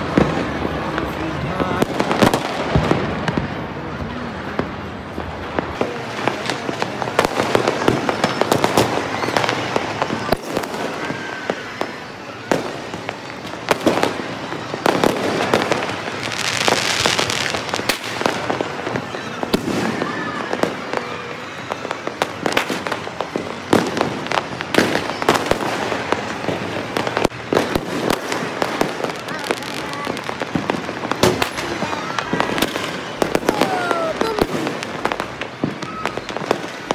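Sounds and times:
fireworks crackling and banging: 0:00.0 - 0:36.9
hissing firework burst: 0:00.0 - 0:36.9
close firecracker cracks: 0:17.0 - 0:36.9.

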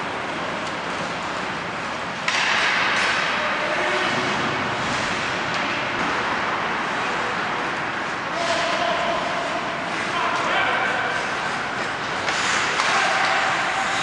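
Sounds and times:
skates hissing on ice: 0:11.0 - 0:14.0.

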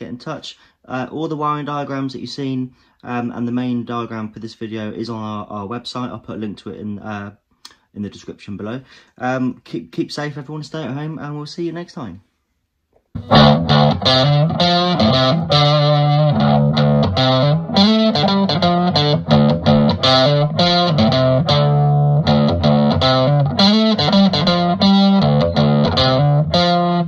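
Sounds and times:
bass line: 0:13.2 - 0:27.0
distorted electric guitar riff: 0:13.2 - 0:27.0.

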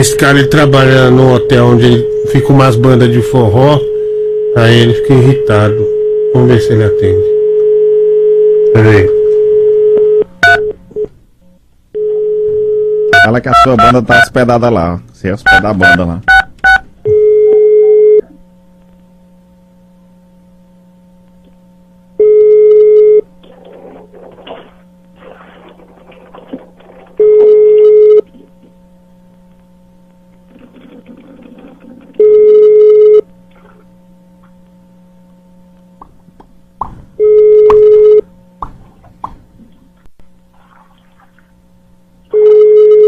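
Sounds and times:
low steady hum: 0:00.0 - 0:43.0
telephone ringback beep: 0:27.2 - 0:28.2, 0:32.2 - 0:33.2, 0:37.2 - 0:38.2, 0:42.4 - 0:43.0.

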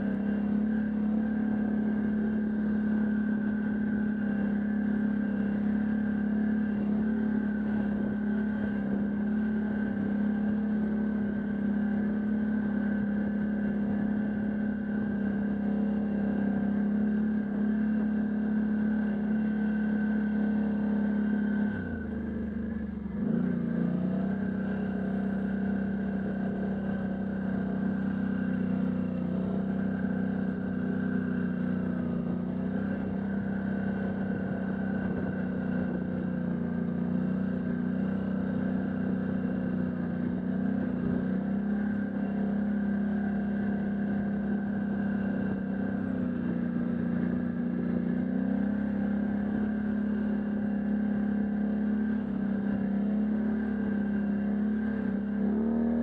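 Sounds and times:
quad bike engine running: 0:00.0 - 0:56.0.

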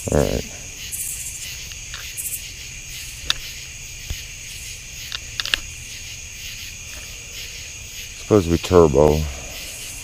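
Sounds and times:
crickets and insects chirping: 0:00.0 - 0:10.0
flashlight button clicks: 0:03.2 - 0:03.5.

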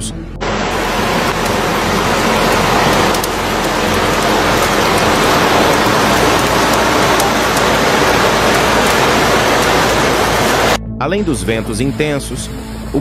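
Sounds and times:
heavy rain pouring: 0:00.4 - 0:10.8.

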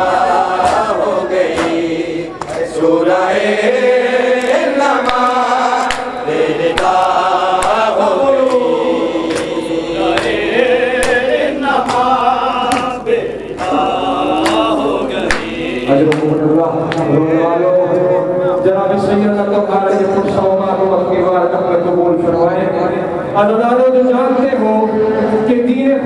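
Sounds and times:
men chanting a lament: 0:00.0 - 0:26.0
hand slaps on chests: 0:06.8 - 0:07.8, 0:11.0 - 0:11.2.

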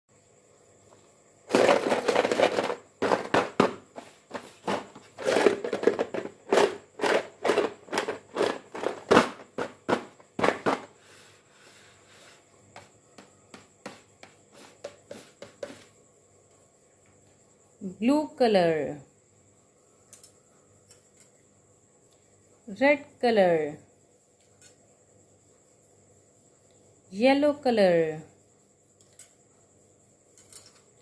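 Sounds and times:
plastic jar of pieces shaken: 0:01.5 - 0:03.7, 0:04.4 - 0:10.6.

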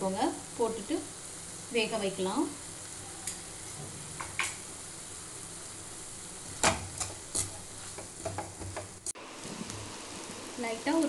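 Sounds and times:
vegetables sizzling in a pan: 0:00.0 - 0:11.0
spatula scraping and tapping pan: 0:06.6 - 0:09.0.

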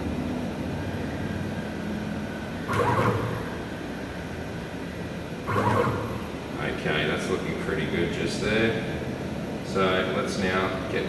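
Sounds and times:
low background hum: 0:00.0 - 0:11.0
stepper motors moving: 0:02.7 - 0:03.7, 0:05.5 - 0:06.4.

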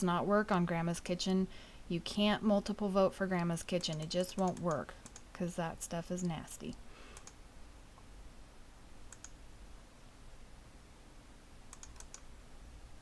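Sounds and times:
low steady hum: 0:00.0 - 0:13.0
mouse and keyboard clicks: 0:09.1 - 0:09.4, 0:11.7 - 0:12.3.

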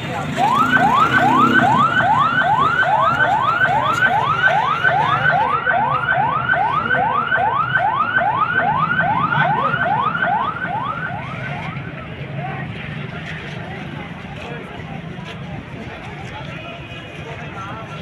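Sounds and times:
siren yelping: 0:00.0 - 0:12.0.

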